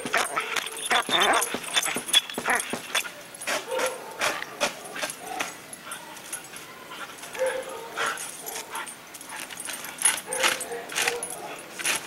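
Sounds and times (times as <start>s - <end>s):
dog crying: 0.0s - 2.7s.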